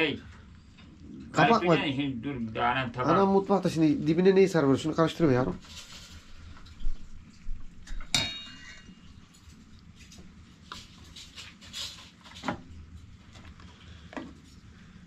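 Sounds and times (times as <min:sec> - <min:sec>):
crockery and cookware clinking: 0:07.8 - 0:09.2.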